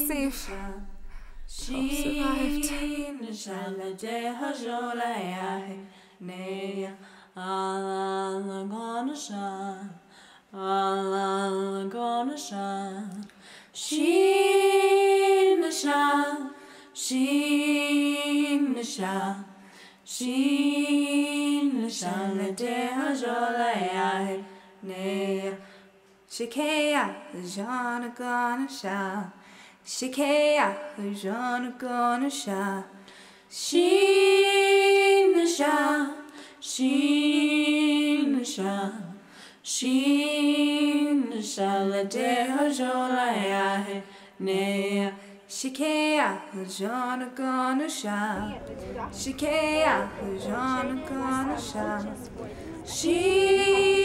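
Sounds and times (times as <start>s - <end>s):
woman singing unaccompanied: 0.0s - 10.0s, 13.8s - 19.5s, 20.1s - 25.6s, 33.6s - 54.0s.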